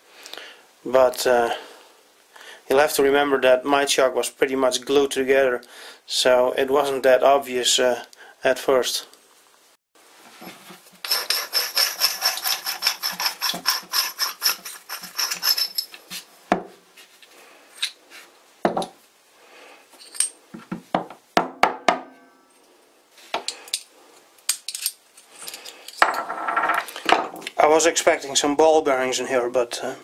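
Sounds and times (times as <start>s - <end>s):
metal parts clinking on bench: 14.8s - 16.0s, 20.0s - 20.4s, 24.5s - 27.2s.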